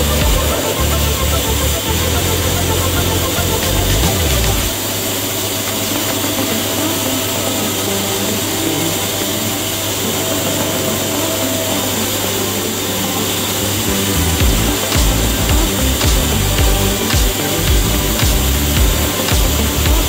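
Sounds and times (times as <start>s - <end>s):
low hum: 0.0s - 4.8s, 13.8s - 20.0s
machine whirring: 0.0s - 20.0s.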